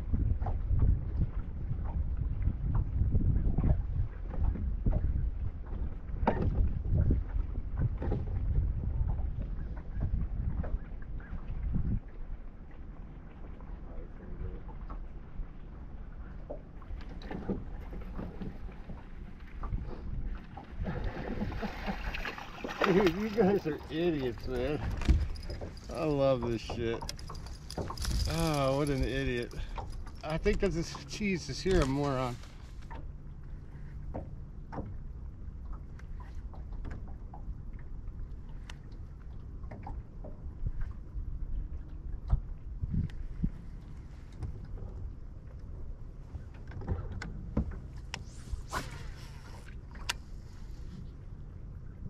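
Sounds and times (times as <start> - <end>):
water slapping against hull: 0.0 - 52.0
wind rumbling on microphone: 0.0 - 52.0
light clicks and knocks: 24.3 - 32.2.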